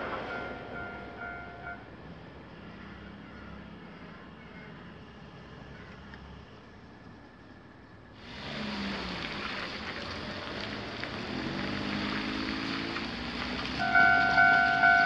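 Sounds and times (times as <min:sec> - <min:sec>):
railway crossing warning bell: 0:00.0 - 0:02.5, 0:13.8 - 0:15.0
car engine passing: 0:00.0 - 0:06.7, 0:08.2 - 0:15.0
traffic on wet street: 0:00.0 - 0:15.0
rain hissing: 0:08.2 - 0:15.0.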